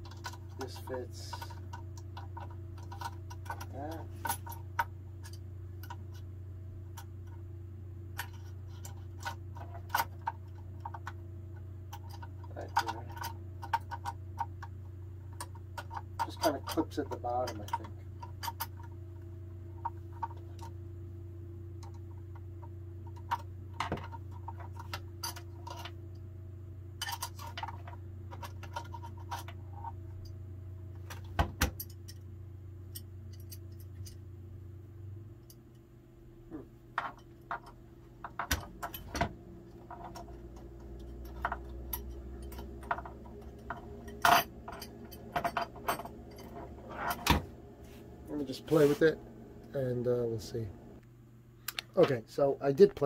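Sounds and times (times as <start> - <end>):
small metal parts clicking: 0.0 - 6.2, 27.0 - 29.9, 31.0 - 32.2, 32.9 - 34.2, 37.0 - 46.5
steady low hum: 0.0 - 53.0.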